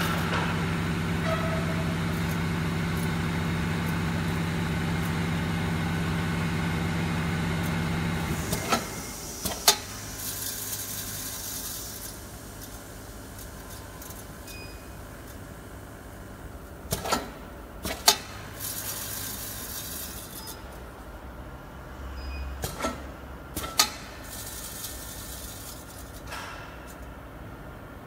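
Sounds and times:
mechanism clicks and knocks: 16.9s - 18.3s, 22.6s - 24.1s.

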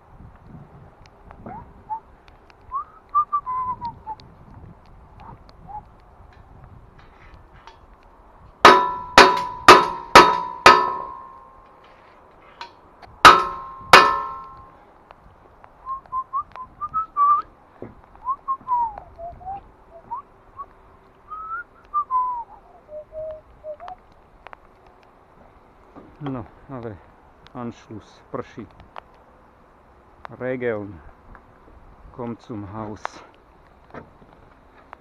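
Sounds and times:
person whistling a tune: 2.7s - 4.2s, 15.8s - 17.4s, 18.2s - 20.7s, 21.3s - 24.0s
metal blows on scaffold: 8.6s - 11.6s, 13.2s - 14.8s.

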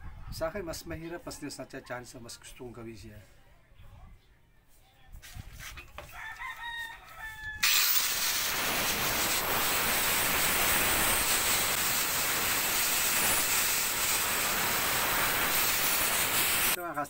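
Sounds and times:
angle grinder cutting plastic: 7.6s - 16.8s
loud hissing whir with high whine: 7.6s - 16.8s.

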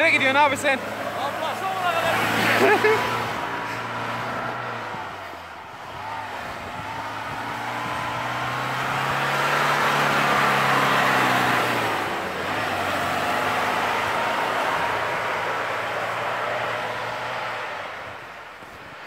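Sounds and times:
diesel engine pulling hard: 0.0s - 19.0s.

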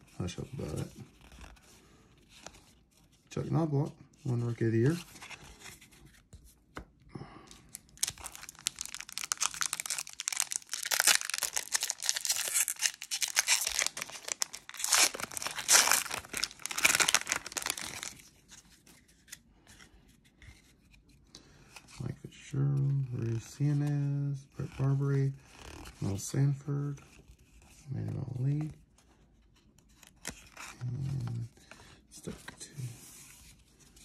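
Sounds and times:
wrapper tearing and crinkling: 7.7s - 18.3s.

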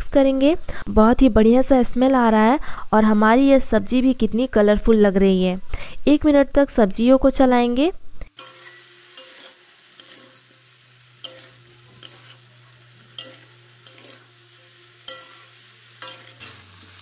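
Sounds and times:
food sizzling: 0.1s - 5.2s, 8.3s - 17.0s
metal spatula scraping pan: 8.4s - 17.0s.

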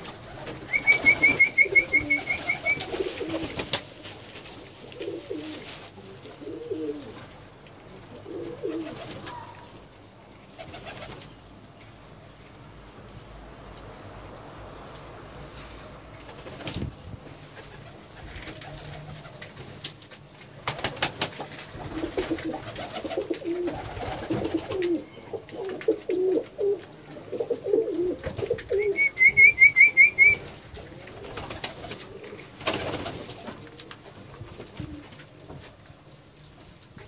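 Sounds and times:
pigeons cooing: 0.0s - 3.6s, 4.9s - 7.2s, 8.1s - 9.7s, 21.8s - 32.6s.

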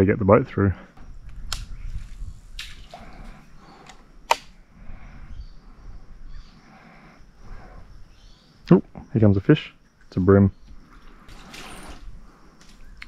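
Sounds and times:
faint water sounds: 2.1s - 3.9s.

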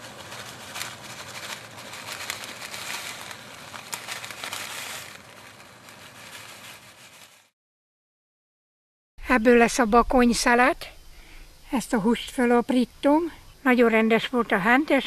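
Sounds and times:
plastic bag crinkling: 0.0s - 7.6s.

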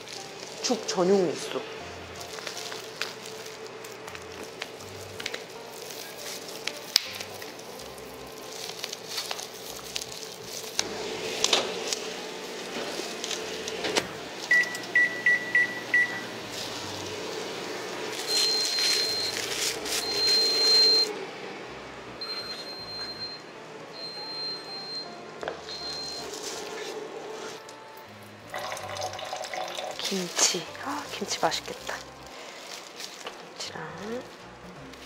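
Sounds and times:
microwave door shutting: 12.7s - 16.4s.

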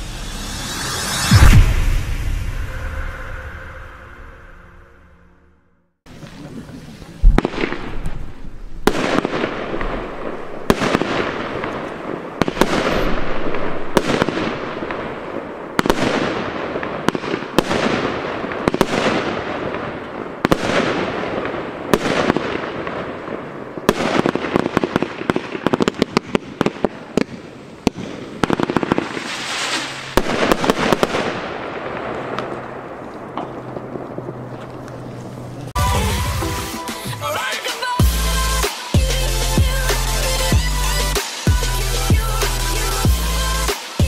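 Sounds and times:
firework hiss: 0.0s - 2.8s, 28.1s - 31.4s
firework crackling: 0.0s - 3.4s, 6.1s - 44.0s
firework bangs: 7.2s - 36.9s.

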